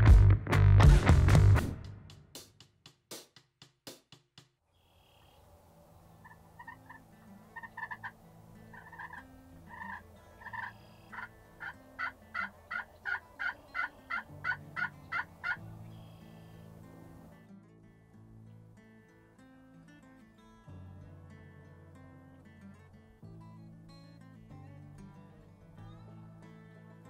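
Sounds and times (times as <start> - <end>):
turkey call yelps: 6.2 - 16.5.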